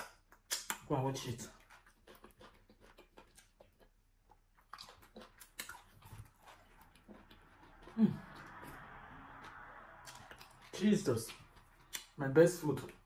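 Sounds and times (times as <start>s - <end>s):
mouth smacks: 0.0s - 0.9s
wet chewing and mouth clicks: 0.0s - 13.0s.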